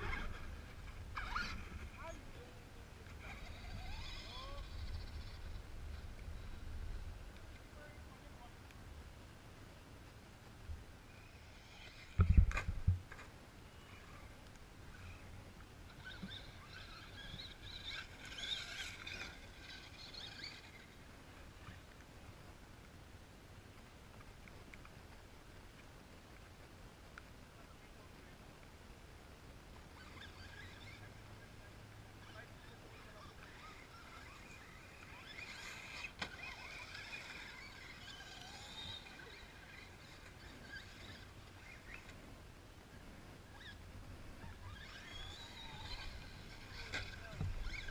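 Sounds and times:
rc truck electric motor whine: 3.2 - 6.7, 15.9 - 20.9, 33.0 - 42.1, 44.4 - 47.9.

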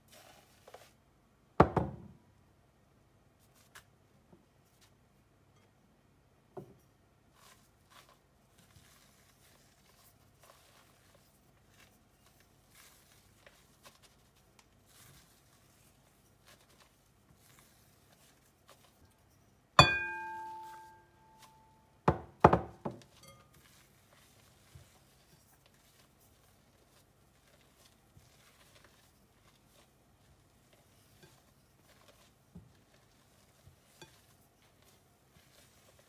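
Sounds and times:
spatula knocking glass bowl: 19.8 - 21.0
spatula scraping bowl: 23.0 - 36.0.

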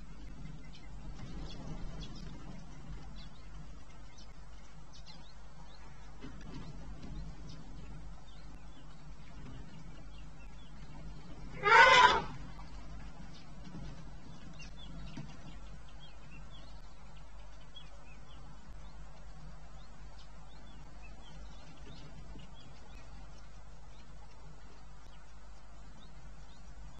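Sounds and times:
elephant trumpeting: 11.6 - 12.4.

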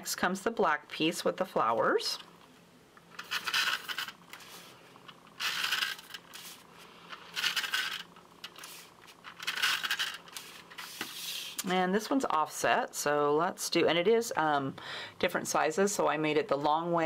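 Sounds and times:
adhesive tape runner scraping hiss: 5.4 - 11.6.

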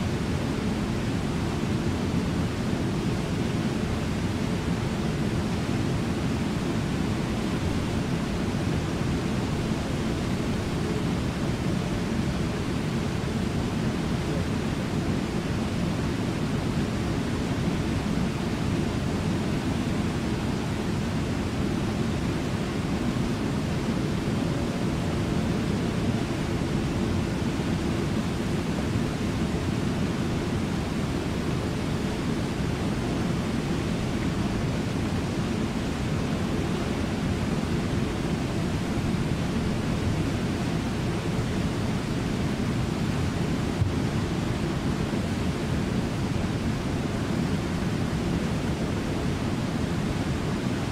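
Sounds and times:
waterfall and rapids roaring: 0.0 - 50.9.

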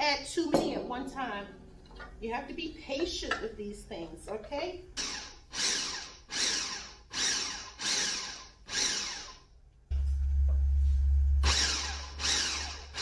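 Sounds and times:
blender pulsing: 5.0 - 9.4, 11.4 - 13.0
loud steady low hum: 9.9 - 13.0.

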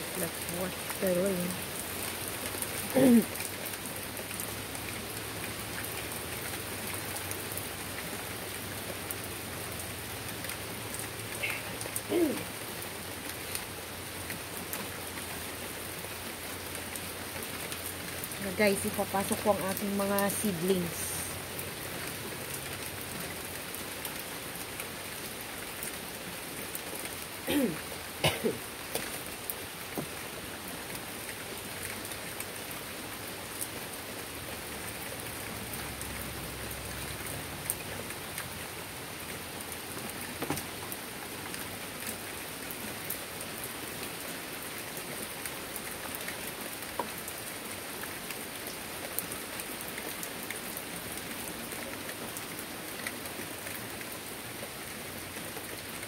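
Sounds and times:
sharp rain taps: 0.0 - 44.2
heavy rain on wooden deck: 0.0 - 56.0.

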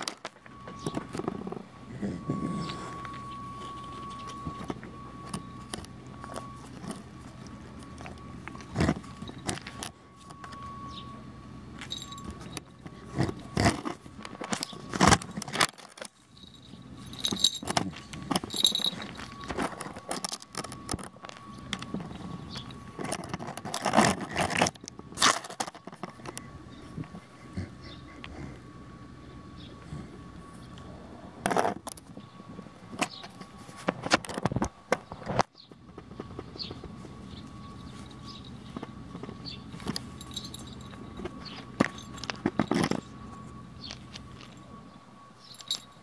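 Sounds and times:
collar bell jingling: 11.8 - 12.8, 16.1 - 19.7, 39.5 - 42.9, 45.4 - 46.0.

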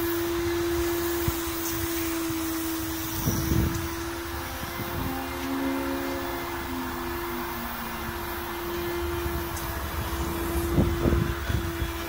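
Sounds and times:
steam cleaner humming and hissing: 0.0 - 12.0.

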